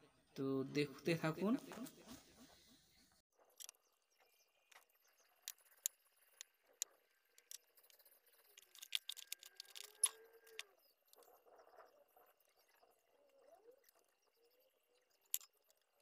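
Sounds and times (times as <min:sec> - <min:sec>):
hand tools clicking and tapping: 0:05.5 - 0:10.7.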